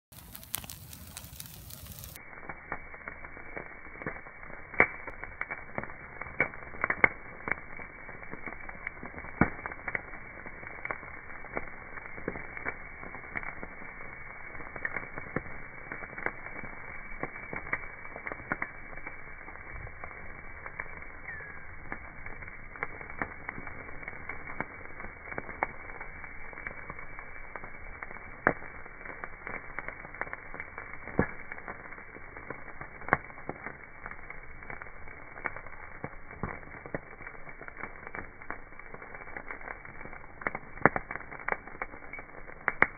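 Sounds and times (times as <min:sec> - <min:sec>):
bonfire crackling and popping: 0:00.0 - 0:42.9
rush of flame: 0:00.1 - 0:42.9.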